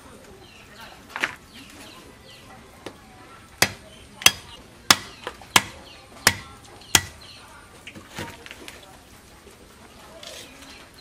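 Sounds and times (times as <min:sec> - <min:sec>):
blade chopping meat on wood: 0:03.6 - 0:07.2.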